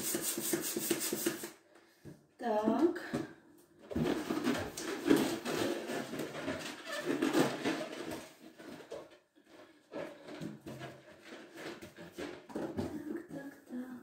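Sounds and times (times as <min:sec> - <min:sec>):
balloons squeaking: 0:05.1 - 0:08.3.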